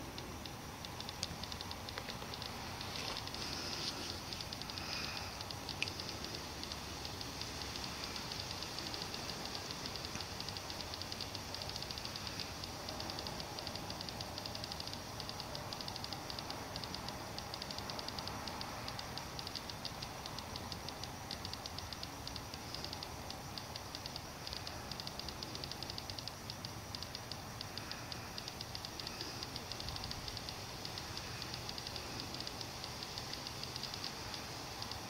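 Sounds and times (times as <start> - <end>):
faint hiss: 0.0 - 35.0
insects chirping: 0.0 - 35.0.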